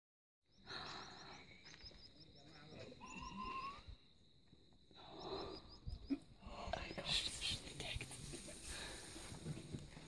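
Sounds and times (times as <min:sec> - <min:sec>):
insects chirping: 0:00.5 - 0:10.0.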